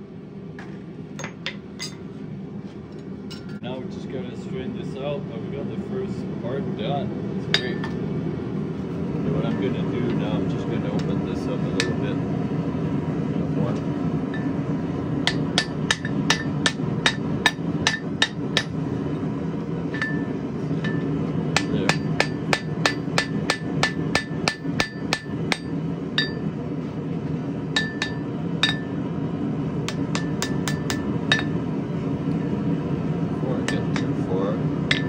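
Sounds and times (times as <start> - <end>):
hammer ringing on steel: 15.3 - 18.8, 20.0 - 26.5, 27.8 - 29.0, 29.9 - 31.6.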